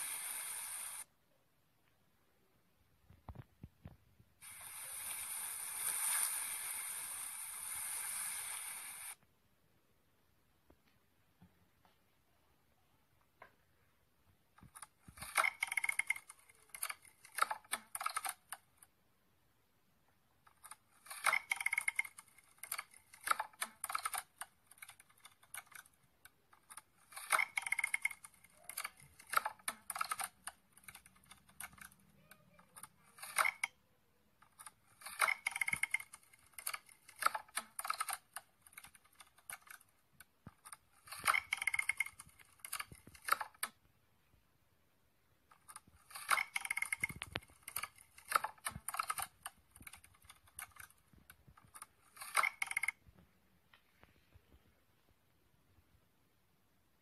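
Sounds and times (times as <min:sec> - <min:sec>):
dry clicking and crackling: 0:14.4 - 0:19.0, 0:20.0 - 0:44.4, 0:45.3 - 0:54.3.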